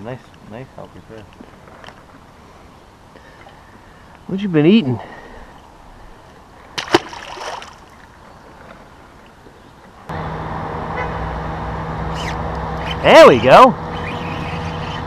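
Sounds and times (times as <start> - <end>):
fish splashing into water: 6.8 - 7.9
boat motor humming: 8.4 - 15.0.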